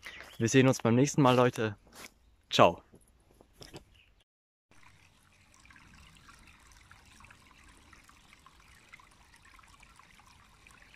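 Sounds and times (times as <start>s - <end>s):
brook trickling over stones: 4.7s - 10.9s.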